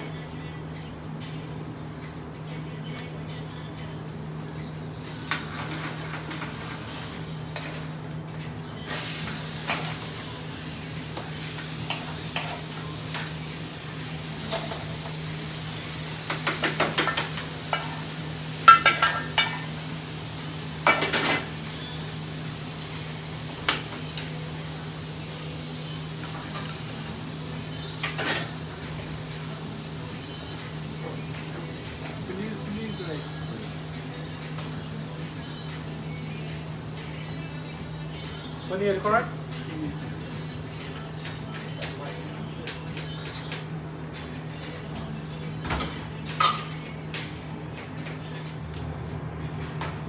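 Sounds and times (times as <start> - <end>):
food sizzling in a pan: 4.0 - 42.0.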